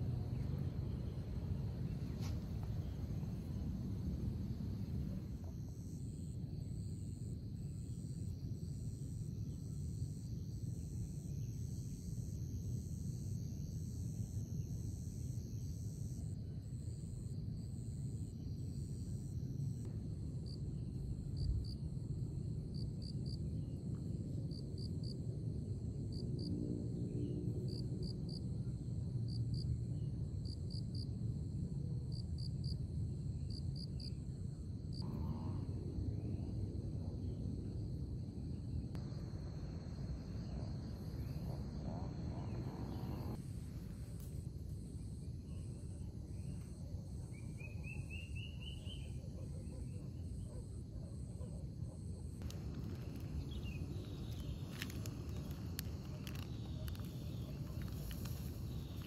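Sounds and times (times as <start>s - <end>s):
crickets chirping: 0.0s - 59.0s
low steady rumble: 34.2s - 46.0s.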